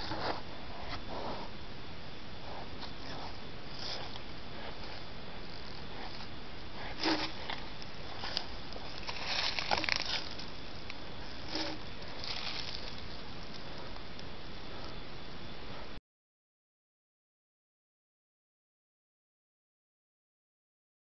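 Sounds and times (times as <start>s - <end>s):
fur rustling against camera: 6.8s - 10.6s, 11.4s - 13.2s.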